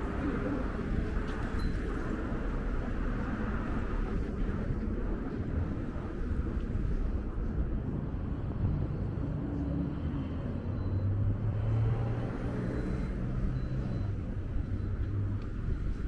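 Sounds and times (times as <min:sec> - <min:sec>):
constant low rumble: 0:00.0 - 0:11.6.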